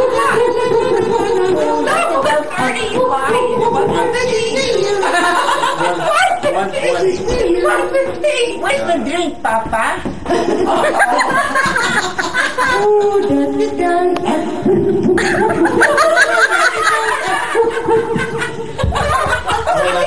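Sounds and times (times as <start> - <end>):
group of people laughing: 4.8 - 6.6, 10.2 - 13.0, 14.7 - 20.0.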